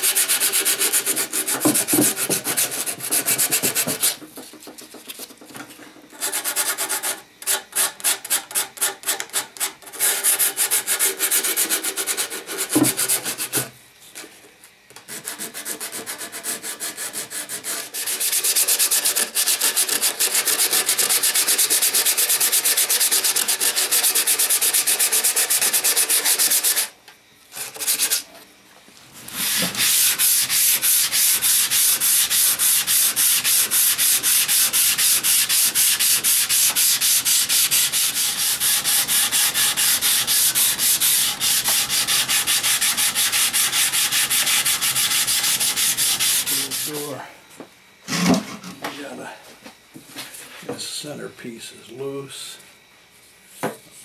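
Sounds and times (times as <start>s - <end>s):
abrasive rubbing on wood: 29.4s - 47.2s.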